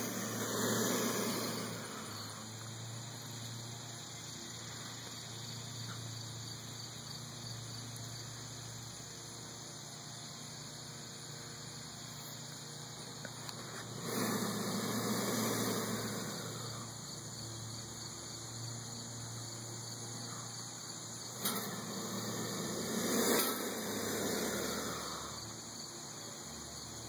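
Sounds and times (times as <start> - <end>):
lizard hissing: 0.0 - 2.7, 13.7 - 17.1, 21.4 - 25.7.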